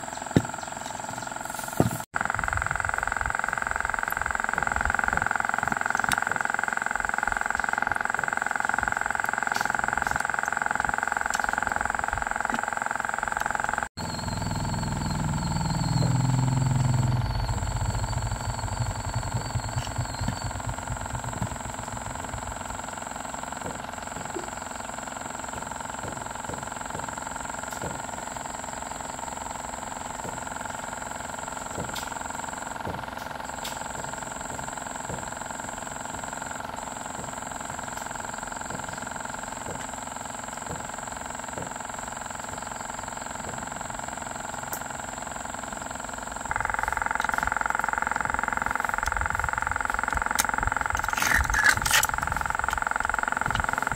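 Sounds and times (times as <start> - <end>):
steady hum with high whine: 0.0 - 53.9
vehicle engine: 14.0 - 22.8.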